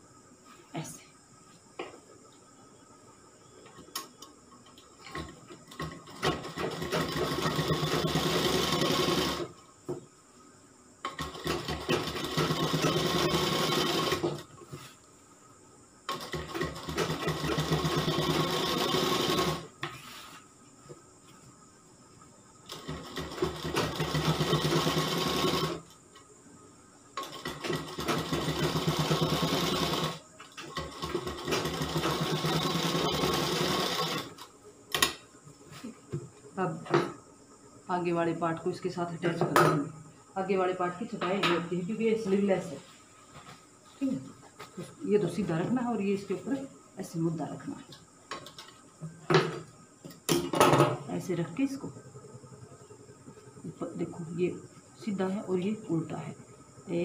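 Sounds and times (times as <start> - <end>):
sewing machine stitching: 5.1 - 9.5, 11.1 - 14.4, 22.7 - 25.8, 27.2 - 34.4.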